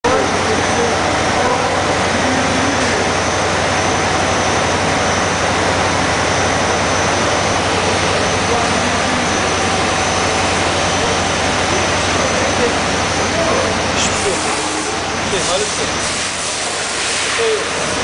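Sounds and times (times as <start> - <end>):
machine rotor whirring hum: 0.0 - 18.0.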